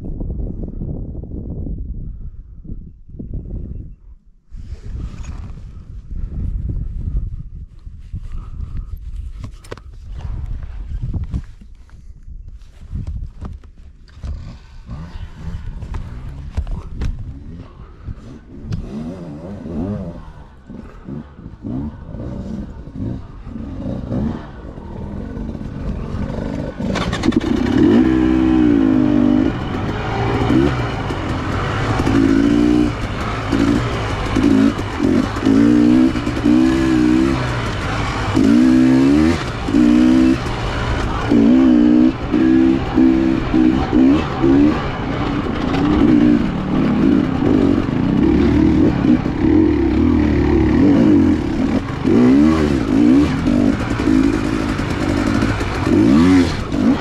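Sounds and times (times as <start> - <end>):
dirt bike engine revving: 14.3 - 57.0.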